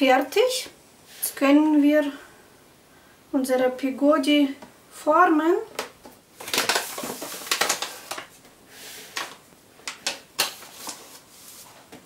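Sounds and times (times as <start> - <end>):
paper bag rustling: 6.4 - 8.4, 10.4 - 11.9.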